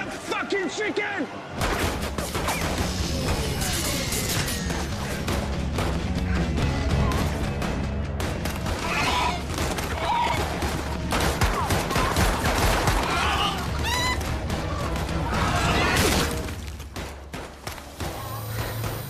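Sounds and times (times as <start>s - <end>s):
dramatic score music: 1.4s - 19.0s.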